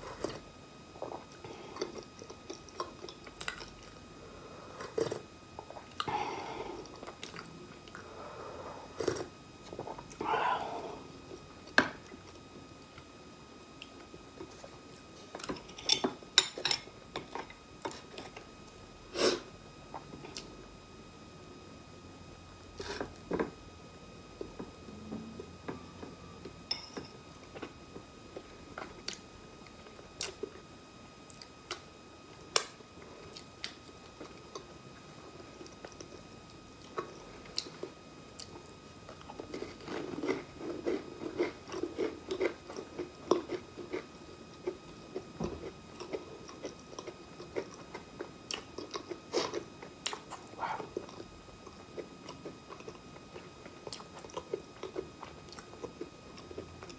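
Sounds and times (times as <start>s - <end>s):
chewing crunchy cracker: 1.0s - 4.0s, 4.8s - 6.1s, 6.8s - 8.1s, 35.6s - 56.9s.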